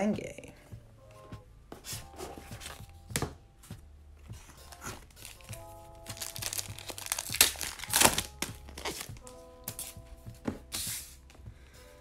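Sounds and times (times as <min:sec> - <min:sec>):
background music: 0:00.0 - 0:12.0
foil wrapper tearing and crinkling: 0:05.1 - 0:09.2.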